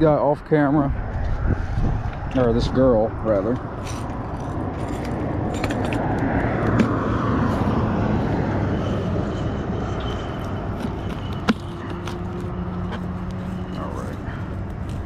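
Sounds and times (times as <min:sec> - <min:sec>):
car passing by: 0:04.9 - 0:14.5.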